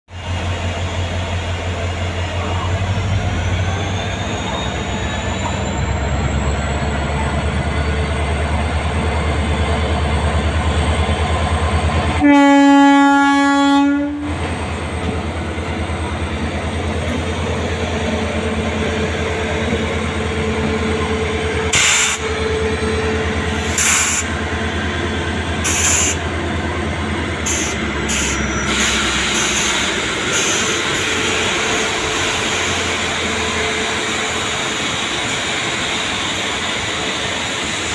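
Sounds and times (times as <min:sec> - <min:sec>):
train rumbling past: 0:00.1 - 0:37.9
locomotive horn blast: 0:12.2 - 0:14.4.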